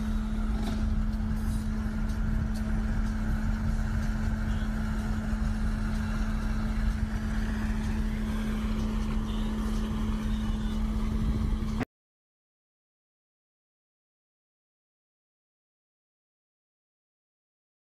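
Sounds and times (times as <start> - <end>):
boat engine running: 0.0 - 11.8
wind rumbling on microphone: 0.0 - 11.8.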